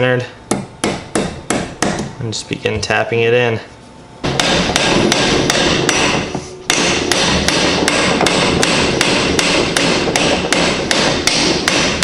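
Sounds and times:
hammer tapping a metal wedge: 4.3 - 12.0.

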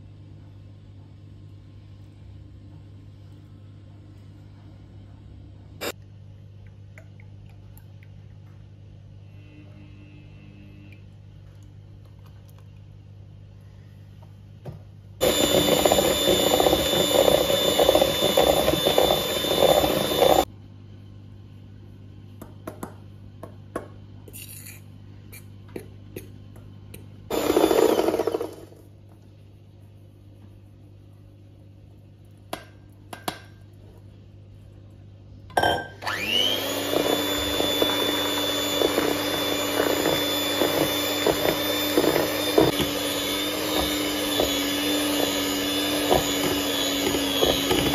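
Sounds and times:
electric hand mixer whine: 15.2 - 20.5, 27.3 - 28.8, 36.0 - 47.9.

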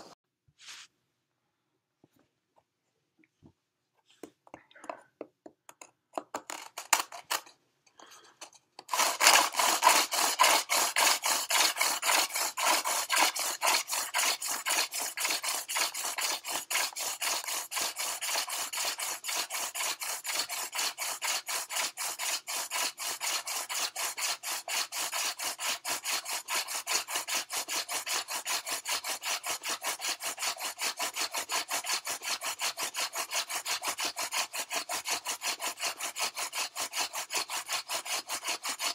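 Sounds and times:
wood-on-wood rubbing of hand drill: 6.4 - 38.9.

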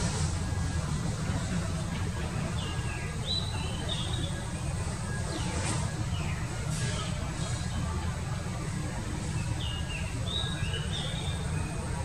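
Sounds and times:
small birds chirping: 2.5 - 7.8, 9.3 - 11.8.

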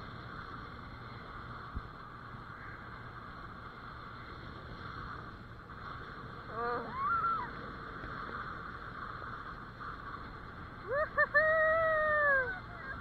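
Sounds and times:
steady rushing noise: 0.0 - 13.0
person whooping: 6.6 - 7.6, 10.8 - 12.7.

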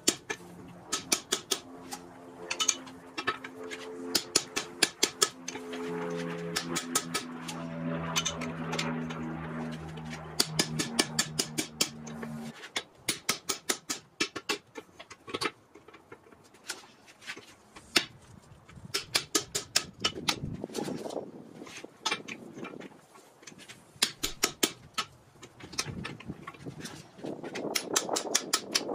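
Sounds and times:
low hum: 0.0 - 12.6.

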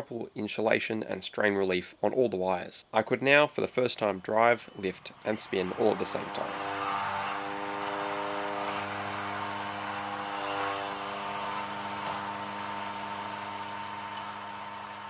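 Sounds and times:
robot drive and lifting arm: 4.6 - 15.0
spinning robot weapon hum: 5.3 - 15.0.

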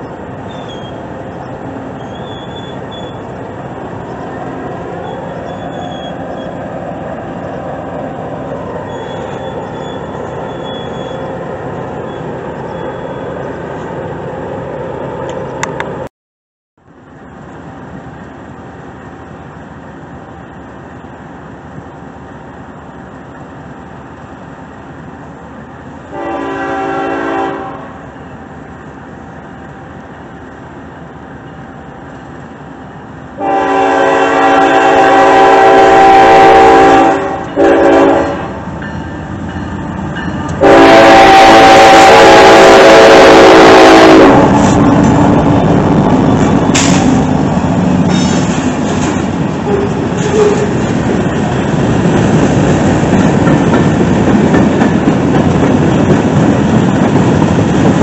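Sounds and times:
train wheels rumbling on rail: 0.0 - 16.1, 16.8 - 58.0
locomotive air horn blasts: 26.1 - 28.0, 33.4 - 38.6, 40.3 - 44.8, 49.6 - 50.8.

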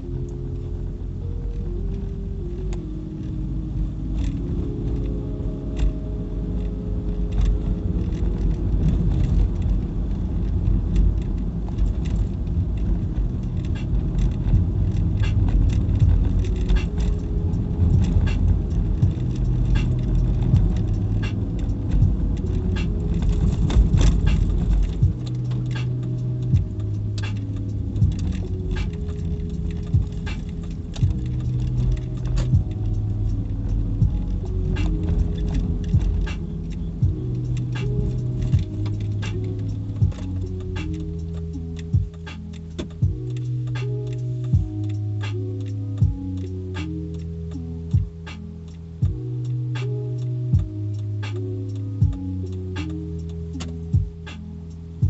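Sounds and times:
faint music: 0.0 - 55.0
light clicks and rattles: 0.0 - 55.0
road and engine rumble: 0.0 - 55.0.

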